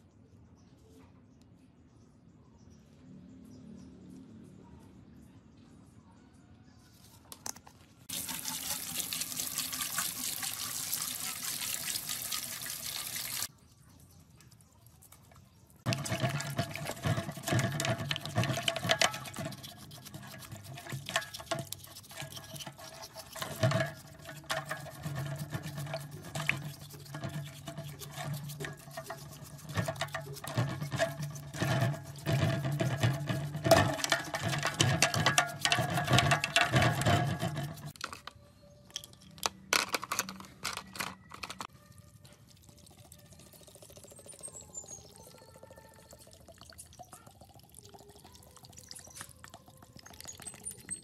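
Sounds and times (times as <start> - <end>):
brush scrubbing in water: 8.1 - 13.5, 15.9 - 38.0
water splashing: 8.1 - 13.5.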